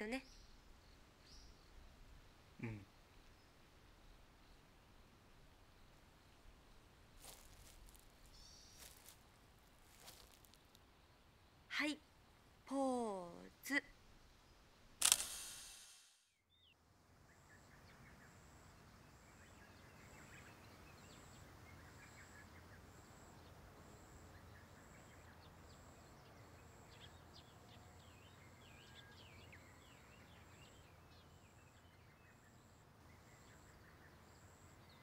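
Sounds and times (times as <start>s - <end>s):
bird chirps: 8.3s - 9.1s.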